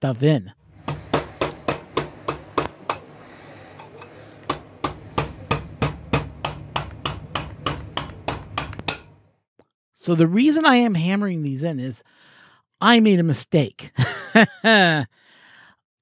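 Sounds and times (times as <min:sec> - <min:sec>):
hammer tapping on metal: 0:00.8 - 0:09.2.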